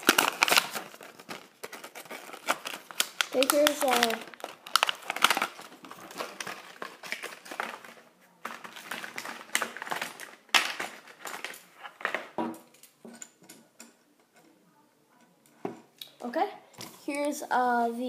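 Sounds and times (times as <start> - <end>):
plastic packaging crackling: 0.0 - 12.4.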